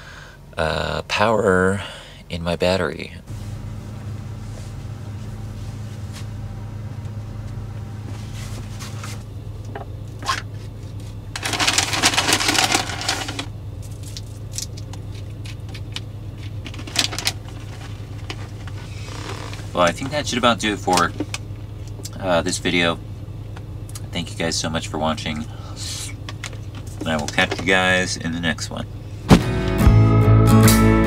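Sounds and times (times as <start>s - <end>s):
low hum inside a van: 0.0s - 31.0s
rustling: 3.3s - 9.3s.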